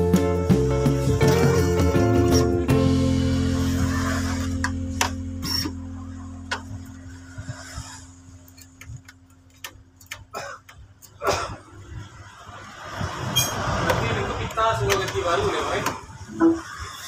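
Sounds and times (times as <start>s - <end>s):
held music chord: 0.0s - 8.5s.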